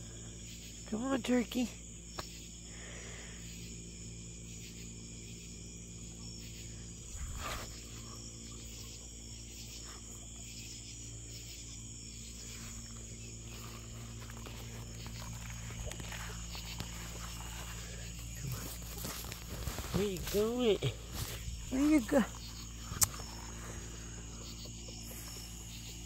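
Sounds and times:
crickets and insects chirring: 0.0s - 26.0s
rustle or footstep: 12.5s - 23.2s.

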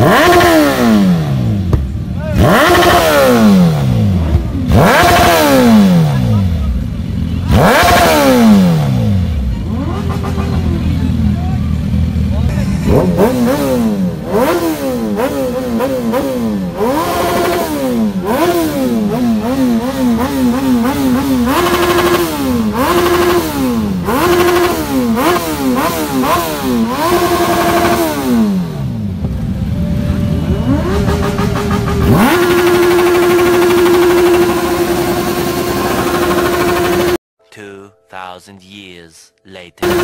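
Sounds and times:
motorcycle engines revving: 0.0s - 37.2s, 39.8s - 40.0s.

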